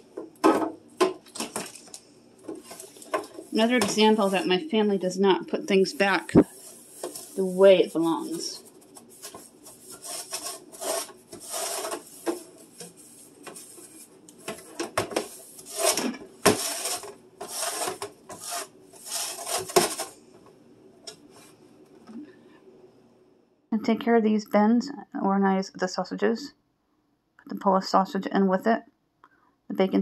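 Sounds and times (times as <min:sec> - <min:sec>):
sponge scrubbing plastic: 0:02.5 - 0:20.2.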